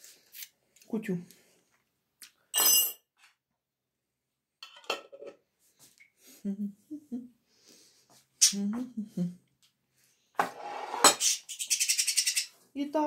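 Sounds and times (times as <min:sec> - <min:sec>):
tableware clinking: 0:02.6 - 0:03.0
tableware knocks and clatters: 0:02.6 - 0:03.0, 0:04.6 - 0:05.4.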